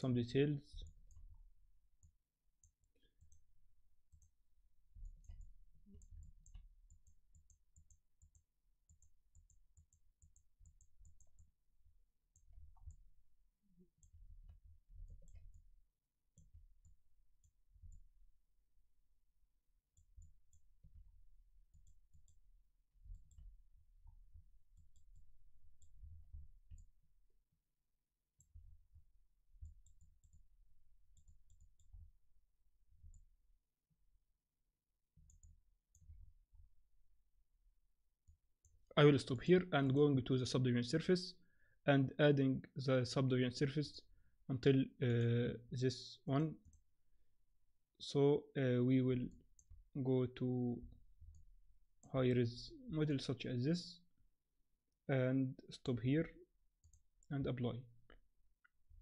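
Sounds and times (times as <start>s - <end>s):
computer mouse clicks: 5.0s - 11.5s, 14.0s - 15.6s, 23.0s - 26.9s, 31.2s - 32.1s, 35.2s - 36.2s.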